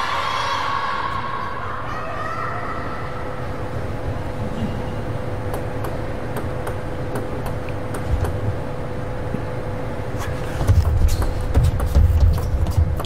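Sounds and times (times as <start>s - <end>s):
faint hum: 0.0s - 13.0s
table tennis strokes: 5.5s - 8.4s, 10.2s - 13.0s.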